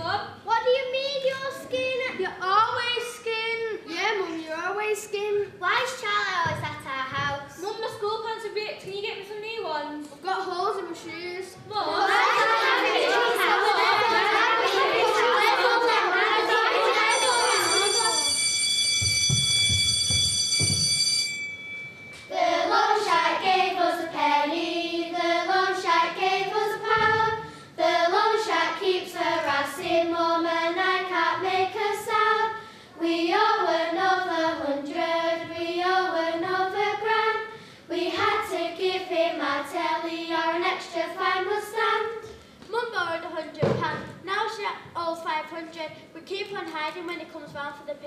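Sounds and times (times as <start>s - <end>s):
young voices singing: 11.6s - 18.3s, 22.3s - 42.4s.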